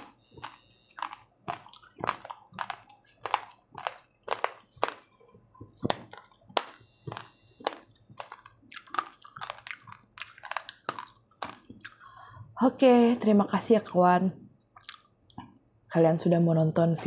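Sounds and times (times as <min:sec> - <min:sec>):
person chewing dry rice: 0:00.0 - 0:12.2, 0:14.8 - 0:15.5.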